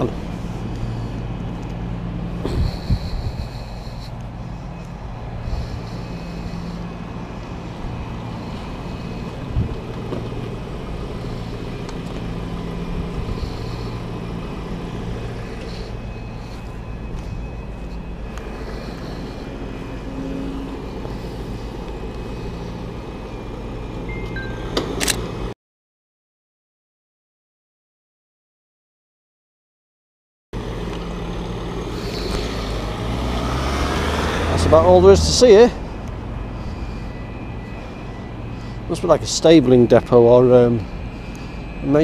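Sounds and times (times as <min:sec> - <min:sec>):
diesel engine idling: 0:00.0 - 0:25.5, 0:30.6 - 0:42.0.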